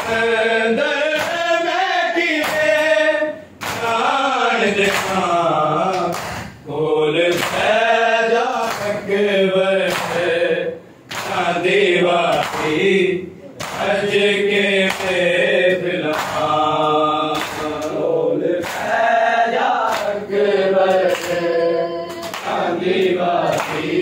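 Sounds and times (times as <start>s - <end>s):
men chanting a lament: 0.0s - 24.0s
men slapping their chests: 1.1s - 1.5s, 2.3s - 3.0s, 3.6s - 4.1s, 4.8s - 5.3s, 5.9s - 6.6s, 7.3s - 7.8s, 8.6s - 9.0s, 9.8s - 10.4s, 11.1s - 11.5s, 12.3s - 12.8s, 13.6s - 14.1s, 14.8s - 16.6s, 17.3s - 19.1s, 19.8s - 20.2s, 20.8s - 21.4s, 22.1s - 24.0s.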